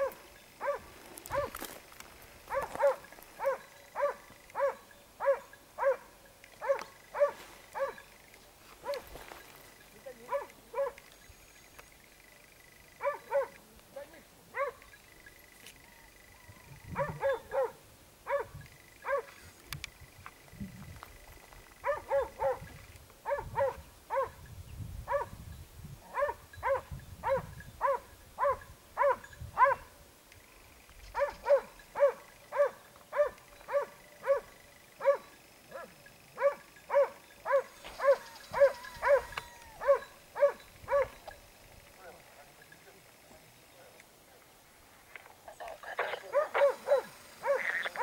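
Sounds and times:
dog barking: 0:00.0 - 0:01.6, 0:02.5 - 0:08.0, 0:08.8 - 0:09.1, 0:10.3 - 0:11.0, 0:13.0 - 0:13.6, 0:14.5 - 0:14.8, 0:17.0 - 0:19.3, 0:21.8 - 0:22.7, 0:23.3 - 0:24.4, 0:25.1 - 0:25.3, 0:26.1 - 0:29.9, 0:31.2 - 0:41.2, 0:46.0 - 0:47.8.

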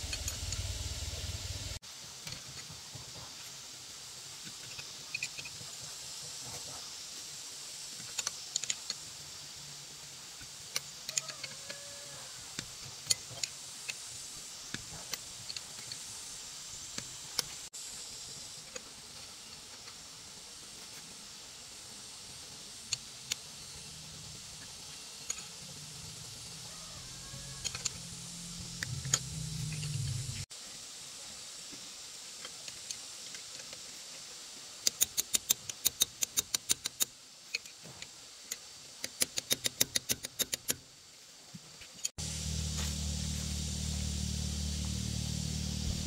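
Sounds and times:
steady high hiss: 0:00.0 - 0:46.0
wrench clicking on wheel nuts: 0:10.7 - 0:11.8, 0:27.1 - 0:30.0, 0:34.8 - 0:37.8, 0:38.5 - 0:40.8.

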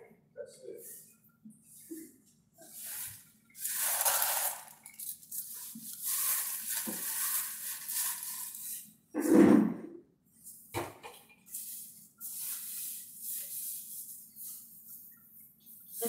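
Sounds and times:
plastic bag rustling: 0:02.6 - 0:08.8.

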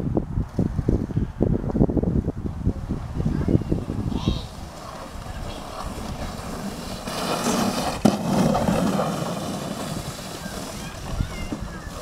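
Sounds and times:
sled scraping over snow: 0:03.2 - 0:12.0.

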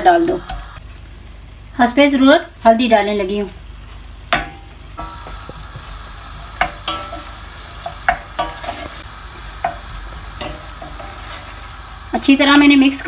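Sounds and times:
food sizzling in a pan: 0:00.0 - 0:13.0
spoon clacking against pan: 0:04.3 - 0:11.4.

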